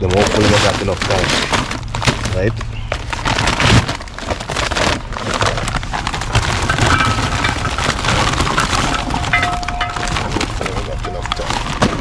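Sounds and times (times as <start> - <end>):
paper bag crinkling: 0.0 - 12.0
charcoal clattering into metal: 5.0 - 12.0.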